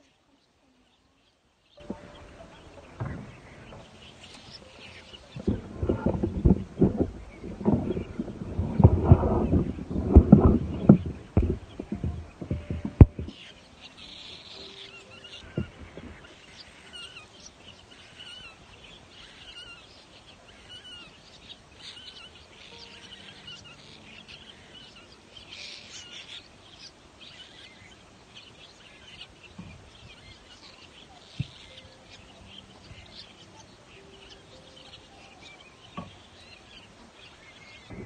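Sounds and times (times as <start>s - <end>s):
nestling birds chirping: 0.0s - 38.0s
soft knocks: 1.8s - 13.5s, 14.6s - 16.4s, 35.9s - 36.2s.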